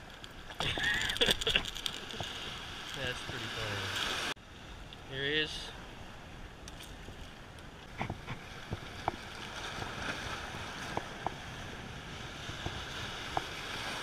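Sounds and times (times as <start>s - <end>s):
waves breaking against rocks: 0.0s - 4.4s, 5.2s - 14.0s
wind on microphone: 5.8s - 14.0s.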